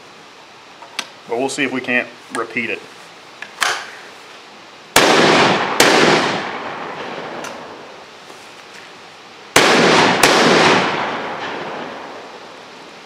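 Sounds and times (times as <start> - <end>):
shotgun shots echoing: 5.0 - 7.8, 9.6 - 12.3.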